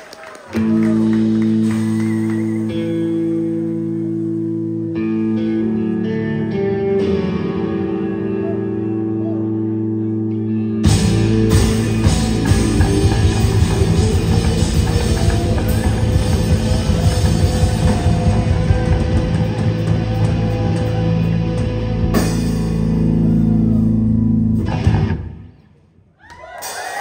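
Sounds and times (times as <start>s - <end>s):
electric guitar: 0.5s - 25.7s
electric bass: 0.6s - 25.6s
drum kit: 10.8s - 25.2s.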